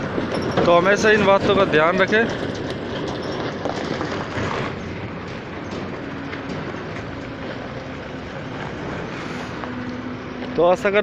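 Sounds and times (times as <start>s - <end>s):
car engine rumbling: 0.0s - 11.0s
tyres on loose gravel: 0.0s - 11.0s.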